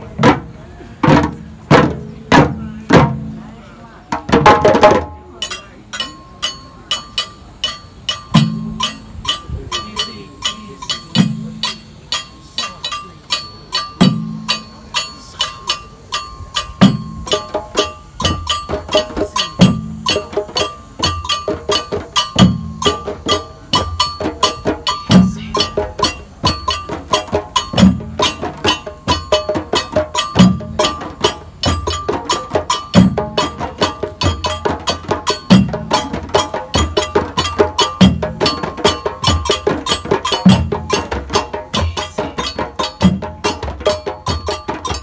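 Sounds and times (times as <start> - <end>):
djembe drums: 0.0 - 45.0.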